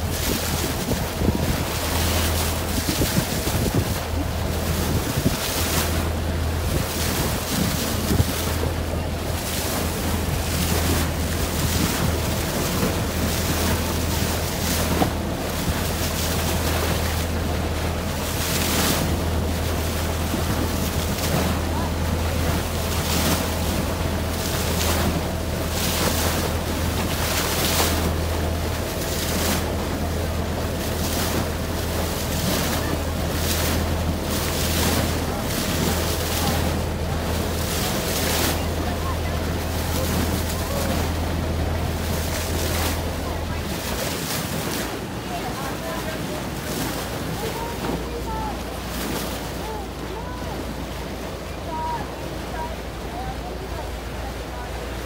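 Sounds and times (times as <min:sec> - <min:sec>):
wind noise on microphone: 0:00.0 - 0:17.5
boat engine droning: 0:00.0 - 0:55.0
water rushing past hull: 0:00.0 - 0:55.0.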